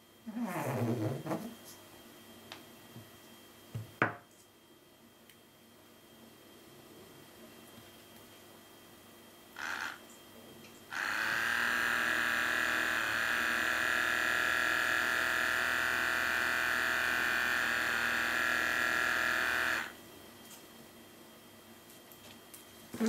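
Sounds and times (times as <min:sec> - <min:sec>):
small motor high whir: 0:09.6 - 0:10.0, 0:10.9 - 0:20.0.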